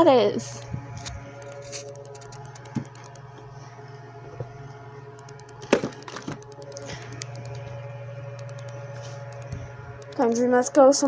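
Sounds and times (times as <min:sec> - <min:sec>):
steady low hum: 0:00.0 - 0:11.0
objects clicking and knocking: 0:05.2 - 0:07.6.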